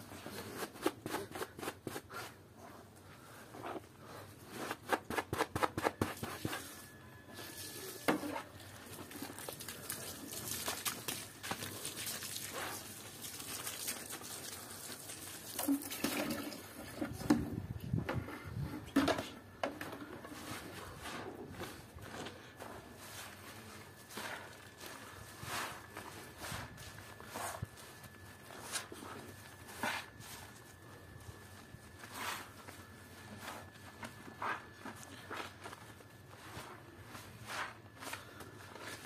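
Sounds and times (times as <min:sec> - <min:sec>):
brush scrubbing: 0:08.4 - 0:15.5, 0:22.6 - 0:39.0
wet foam squishing and sloshing: 0:08.6 - 0:16.8.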